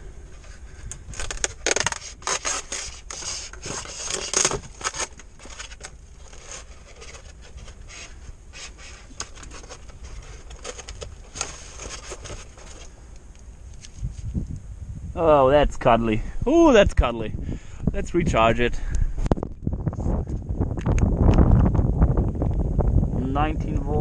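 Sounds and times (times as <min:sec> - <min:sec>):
foam scraping against plastic: 0:01.1 - 0:13.0.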